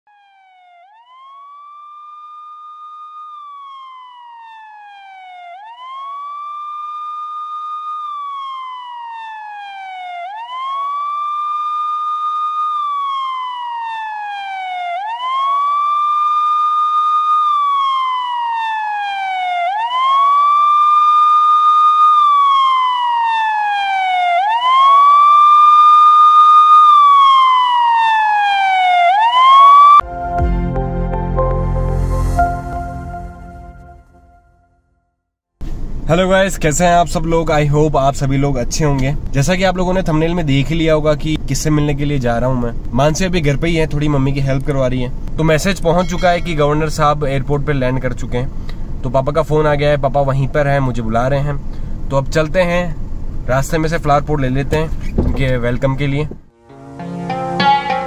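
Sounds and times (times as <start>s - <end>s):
electronic siren wailing: 0.1s - 34.8s, 45.5s - 47.2s.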